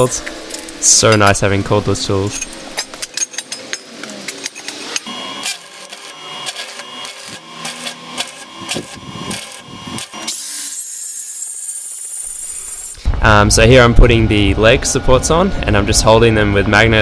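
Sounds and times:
angle grinder grinding metal: 0.0s - 13.1s.

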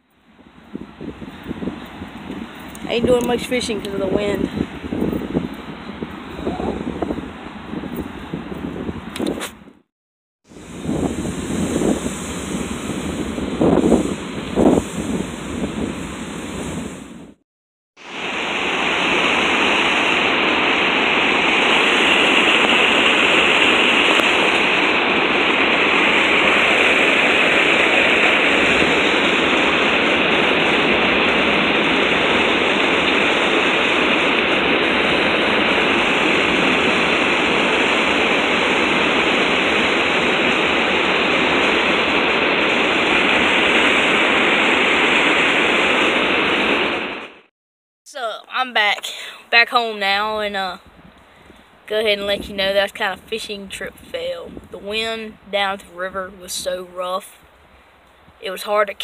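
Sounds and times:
water rushing over dam: 18.0s - 47.4s.

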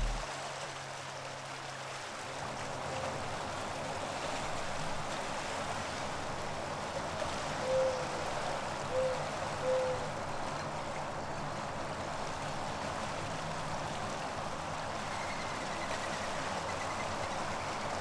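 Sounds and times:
rushing choppy water: 0.0s - 18.0s.

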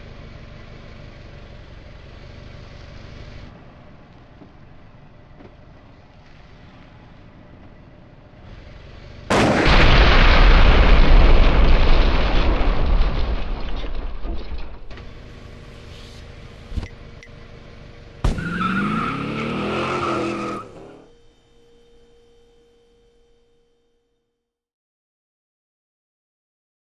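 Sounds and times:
gunshot-like crack: 9.3s - 10.8s.

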